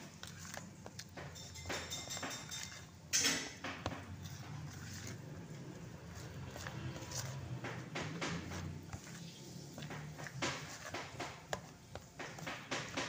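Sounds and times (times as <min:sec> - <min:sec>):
hand squishing thick batter: 0:00.0 - 0:13.0.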